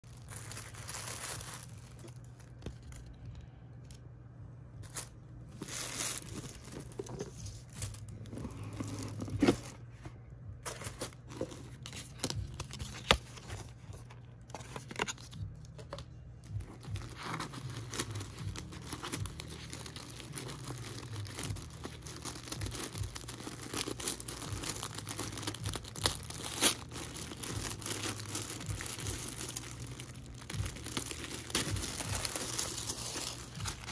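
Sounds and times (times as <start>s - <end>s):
tissue paper tearing: 0.0s - 2.4s, 4.8s - 9.7s, 16.9s - 33.9s
low steady hum: 0.0s - 33.9s
paper and cardboard rustling: 4.8s - 33.9s.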